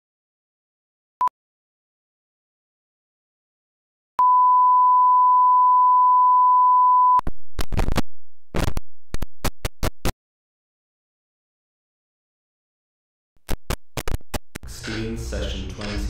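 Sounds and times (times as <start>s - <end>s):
crackling noise bursts: 7.2s - 10.2s, 13.4s - 16.0s.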